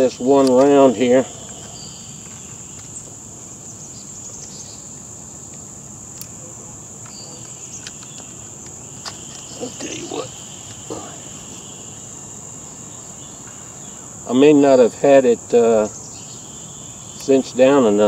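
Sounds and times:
high-pitched insect chorus: 0:00.0 - 0:18.0
rifle handling clicks: 0:07.0 - 0:08.3.

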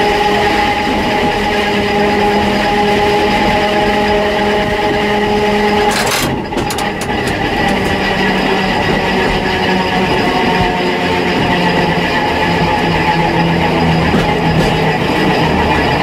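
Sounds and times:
wheel and track noise: 0:00.0 - 0:16.0
electric motor and gears humming: 0:02.2 - 0:10.6
clicks: 0:05.9 - 0:08.2.

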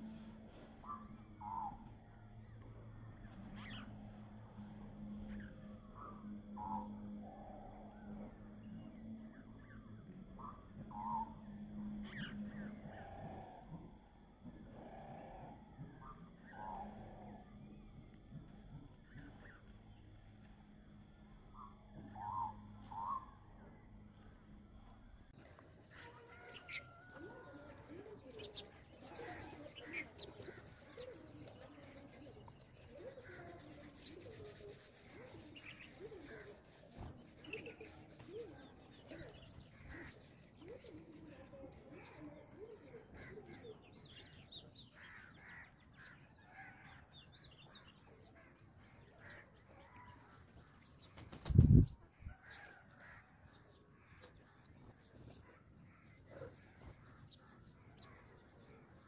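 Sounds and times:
sparrows chirping: 0:25.6 - 0:59.0.

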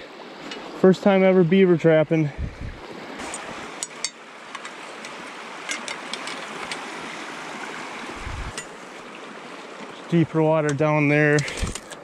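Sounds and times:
water rushing through sticks: 0:02.9 - 0:12.0.

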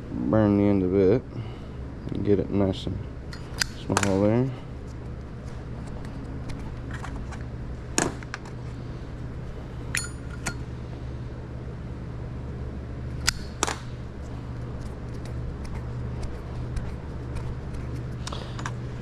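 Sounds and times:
low hum: 0:00.0 - 0:19.0
metallic clink: 0:09.9 - 0:10.6.

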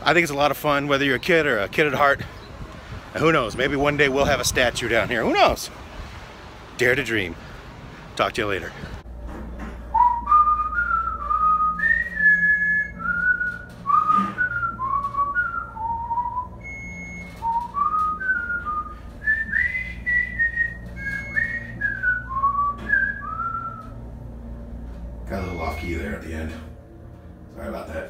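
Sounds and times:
man whistling a tune: 0:09.9 - 0:24.0, 0:25.3 - 0:26.2.

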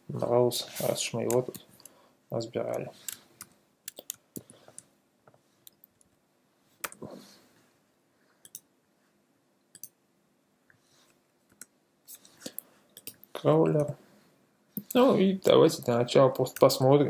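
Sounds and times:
keyboard and mouse clicks: 0:02.7 - 0:04.9, 0:08.4 - 0:08.7, 0:09.7 - 0:10.0, 0:12.4 - 0:14.0.

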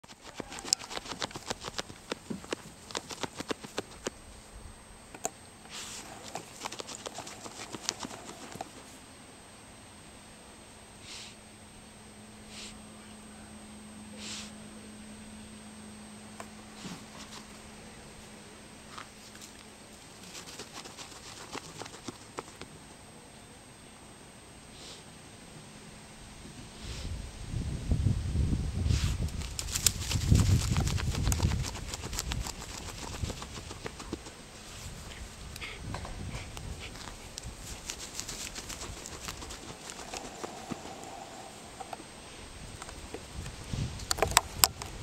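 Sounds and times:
dog claws digging in dirt: 0:00.0 - 0:04.2, 0:05.2 - 0:09.0, 0:19.0 - 0:22.7, 0:29.3 - 0:35.2, 0:36.4 - 0:42.0.

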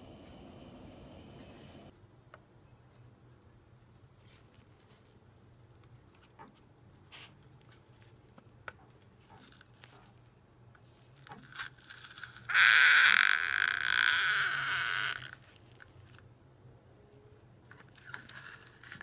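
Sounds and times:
crackles of scorching cardboard: 0:17.6 - 0:19.0.

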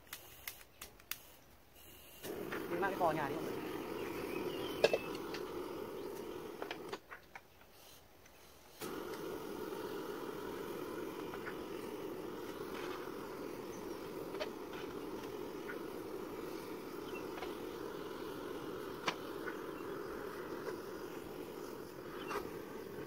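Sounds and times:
sharp clicks: 0:00.0 - 0:01.4
gas torch rushing: 0:02.2 - 0:07.0, 0:08.6 - 0:23.0.

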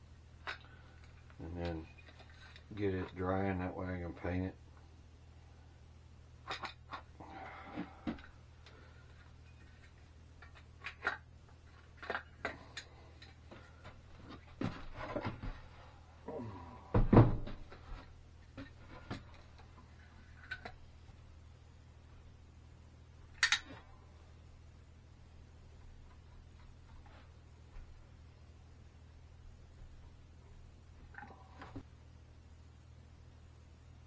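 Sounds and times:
heavy thump of bench: 0:16.8 - 0:17.6.

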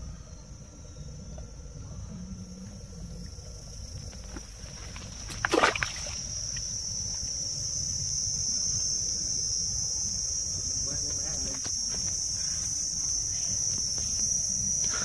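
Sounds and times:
crickets buzzing: 0:00.0 - 0:15.0
fish splashing into bucket: 0:04.9 - 0:06.4.

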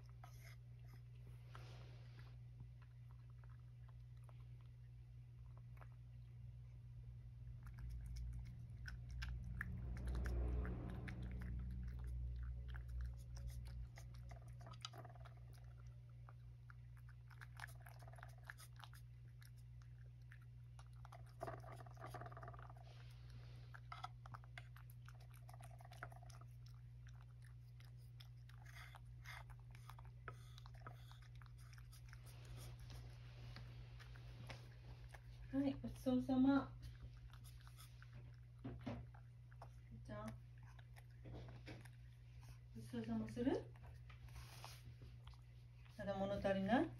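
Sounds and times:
cat chewing and licking: 0:00.0 - 0:46.9
steady low hum: 0:00.0 - 0:46.9
low rumble: 0:05.0 - 0:16.5.

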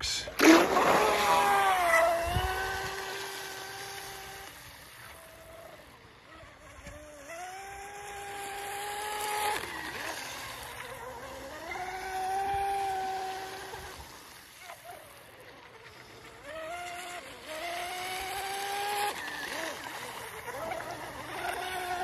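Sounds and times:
high electric motor whine: 0:00.0 - 0:22.0.

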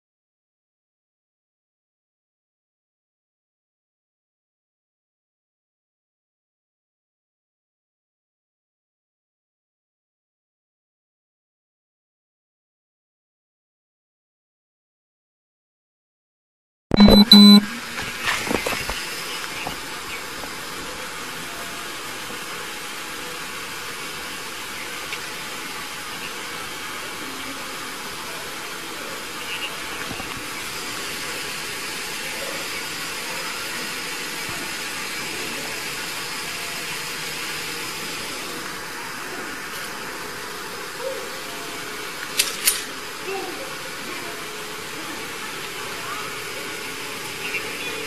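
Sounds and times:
steady hissing noise: 0:17.7 - 0:48.0.

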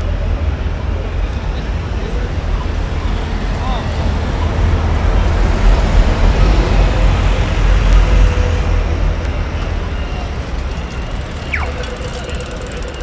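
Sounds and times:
city street noise: 0:00.0 - 0:13.0
tram passing with low rumble: 0:00.0 - 0:13.0
crossing signal rapid ticking: 0:04.3 - 0:13.0.

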